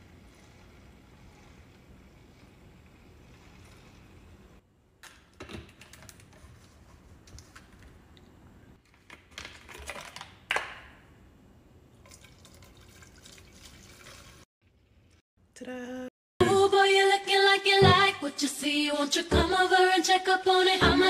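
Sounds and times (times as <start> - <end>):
liquid pouring into plastic bottle: 12.0 - 14.4.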